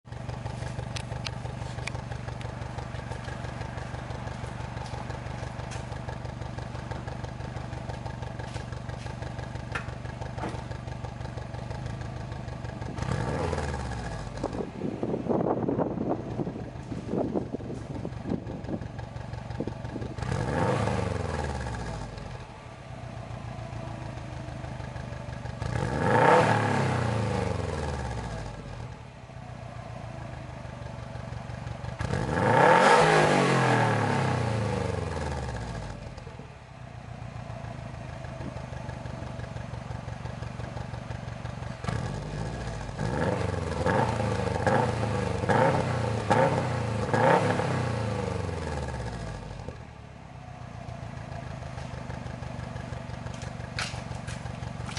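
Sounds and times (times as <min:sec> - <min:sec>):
car engine revving: 0:12.7 - 0:18.8, 0:19.5 - 0:29.0, 0:31.0 - 0:36.2, 0:38.4 - 0:49.9.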